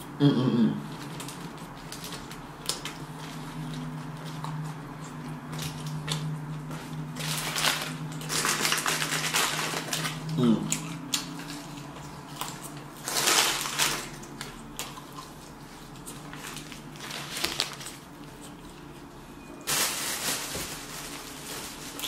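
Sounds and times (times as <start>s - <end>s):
person chewing food: 0.8s - 19.1s
paper wrapper crinkling: 7.1s - 10.3s, 12.5s - 14.7s, 16.0s - 18.6s, 19.6s - 22.0s
paper bag rustling: 7.2s - 10.3s, 13.0s - 14.3s, 16.2s - 18.4s, 19.6s - 22.0s.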